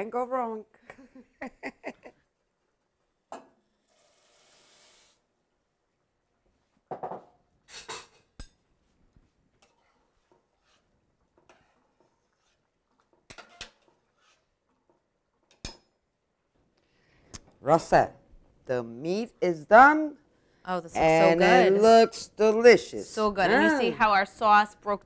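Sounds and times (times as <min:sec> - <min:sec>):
metal ladle stirring in pot: 0:09.6 - 0:15.0.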